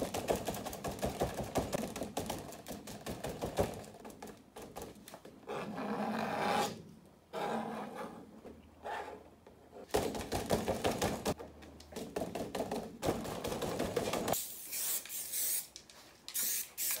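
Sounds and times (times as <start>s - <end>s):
spray can hissing: 14.4s - 17.0s.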